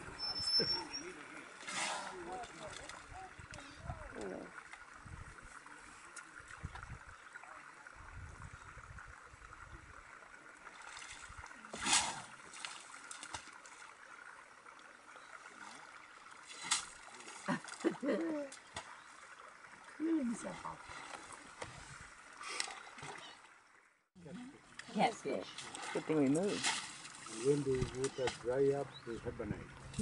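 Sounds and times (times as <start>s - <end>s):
elephant splashing water: 0.2s - 4.6s, 10.6s - 14.0s, 15.2s - 23.5s, 24.9s - 28.6s.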